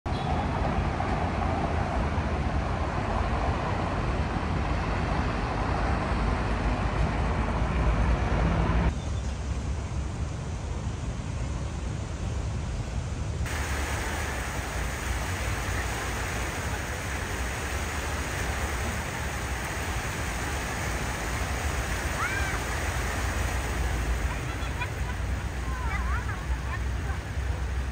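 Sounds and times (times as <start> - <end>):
city traffic rumble: 0.1 - 27.9
fountain splashing into pool: 13.4 - 27.9.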